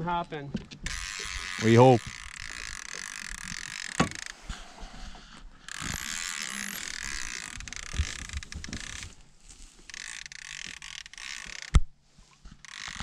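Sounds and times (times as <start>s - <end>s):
fishing reel clicker ratcheting: 0.8s - 4.4s, 5.7s - 9.1s, 9.8s - 11.8s, 12.6s - 13.0s.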